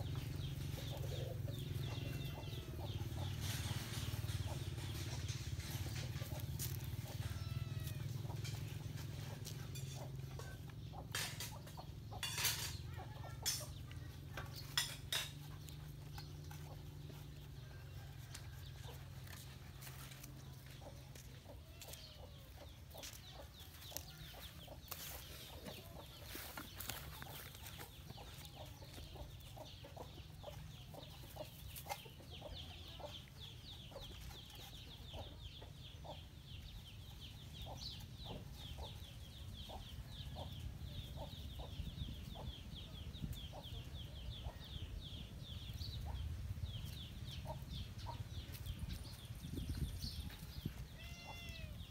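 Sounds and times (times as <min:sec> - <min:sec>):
chickens clucking: 0:00.0 - 0:51.9.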